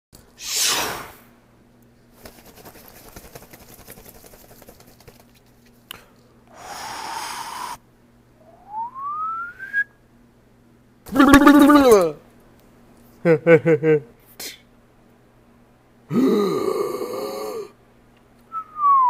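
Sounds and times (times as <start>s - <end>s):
burst of hiss: 0.4s - 1.3s, 6.5s - 7.8s
whistle-like tone sliding upward: 8.4s - 9.9s.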